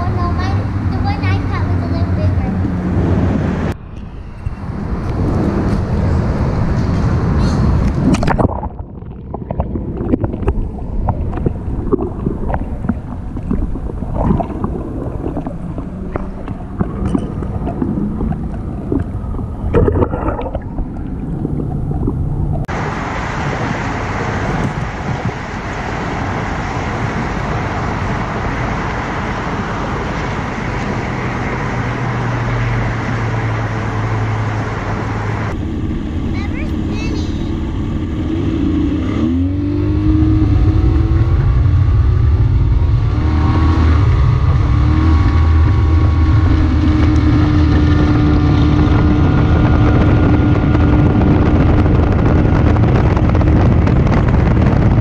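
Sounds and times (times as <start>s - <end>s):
hiss of wind and water: 0.0s - 55.0s
low steady hum: 0.0s - 55.0s
underwater gurgling: 7.8s - 25.7s
knocks underwater: 8.0s - 22.7s.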